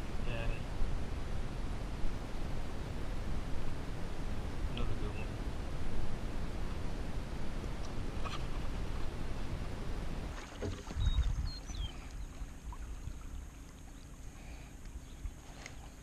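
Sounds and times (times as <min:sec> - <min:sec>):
water rushing: 0:02.1 - 0:14.8.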